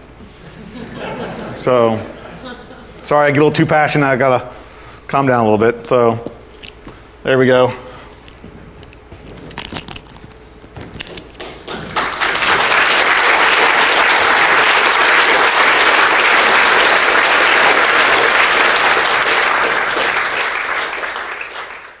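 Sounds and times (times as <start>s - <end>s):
audience applauding: 11.4s - 22.0s.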